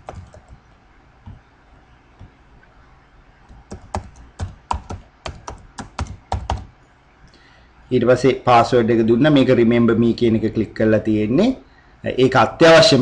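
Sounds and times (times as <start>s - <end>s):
typing on computer keyboard: 0.0s - 0.6s, 3.5s - 6.7s.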